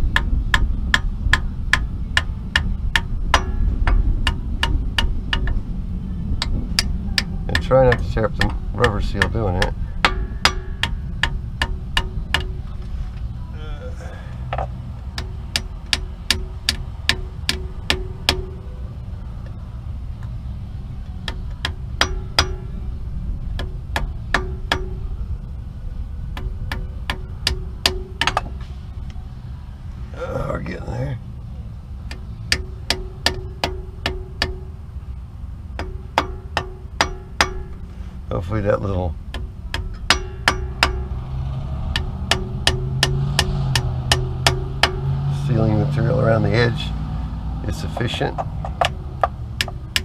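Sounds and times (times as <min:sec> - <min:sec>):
hammer tapping metal: 0:00.0 - 0:05.7, 0:06.4 - 0:12.8, 0:14.5 - 0:18.8, 0:21.1 - 0:22.8, 0:23.4 - 0:25.2, 0:26.3 - 0:28.6, 0:32.1 - 0:34.8, 0:35.8 - 0:37.9, 0:39.3 - 0:45.7, 0:47.7 - 0:50.0
low rumble: 0:00.0 - 0:50.0.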